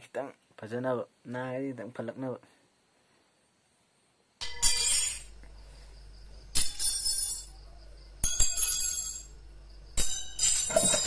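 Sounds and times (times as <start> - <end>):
metallic jingling: 4.4 - 5.4, 6.5 - 7.6, 8.2 - 11.0.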